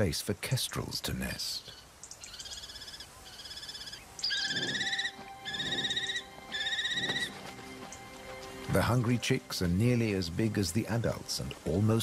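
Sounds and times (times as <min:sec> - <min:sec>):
kestrel quavering screeches: 0:01.7 - 0:07.4.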